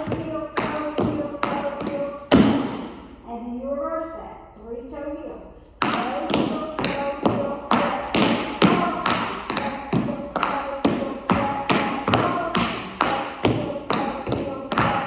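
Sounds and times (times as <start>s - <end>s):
tap shoes on wooden floor: 5.8s - 15.0s.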